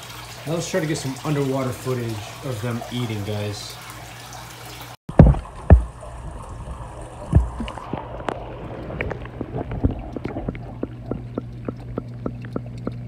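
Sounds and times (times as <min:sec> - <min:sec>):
microphone thump: 0:05.1 - 0:05.9
muffled underwater hum: 0:05.1 - 0:13.0
sharp underwater clicks: 0:07.3 - 0:13.0.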